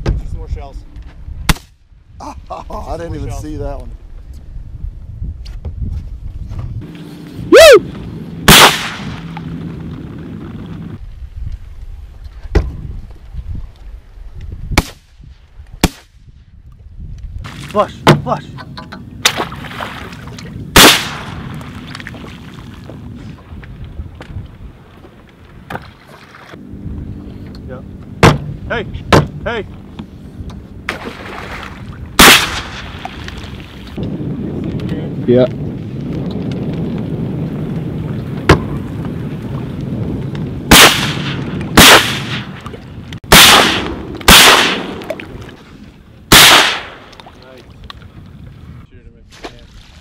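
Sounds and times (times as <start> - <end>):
sharp crack: 1.4 - 1.8, 8.4 - 10.0, 14.8 - 15.2, 15.8 - 16.3, 20.8 - 22.2, 32.2 - 33.6, 40.7 - 45.5, 46.3 - 47.6
shotgun shot: 8.5 - 9.2, 14.8 - 15.1, 15.8 - 16.1, 20.8 - 21.4, 32.2 - 33.0, 40.7 - 42.6, 43.3 - 45.2, 46.3 - 47.1.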